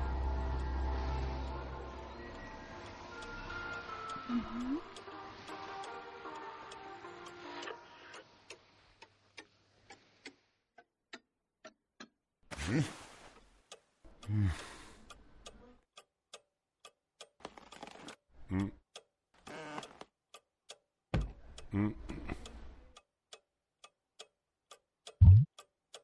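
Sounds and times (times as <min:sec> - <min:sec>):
clock ticking: 0:03.3 - 0:12.3, 0:13.6 - 0:19.2, 0:19.8 - 0:26.0
man grunting: 0:12.6 - 0:13.0.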